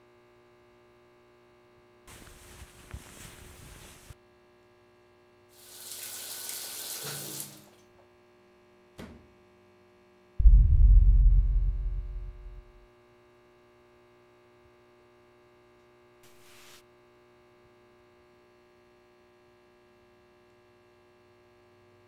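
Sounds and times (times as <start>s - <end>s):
shower water running: 5.6s - 7.8s
loud low rumble: 10.4s - 12.8s.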